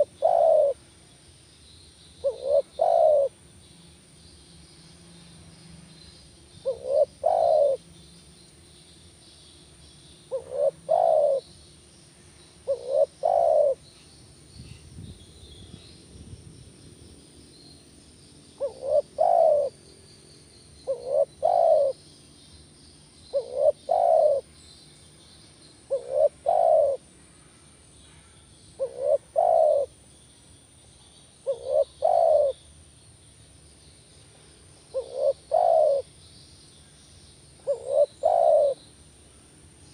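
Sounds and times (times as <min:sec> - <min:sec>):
dove cooing: 0:00.0 - 0:00.8, 0:02.2 - 0:03.4, 0:06.6 - 0:07.8, 0:10.3 - 0:11.6, 0:12.6 - 0:13.9, 0:18.6 - 0:19.8, 0:20.8 - 0:22.0, 0:23.3 - 0:24.5, 0:25.9 - 0:27.1, 0:28.8 - 0:29.9, 0:31.4 - 0:32.6, 0:34.9 - 0:36.2, 0:37.6 - 0:38.9.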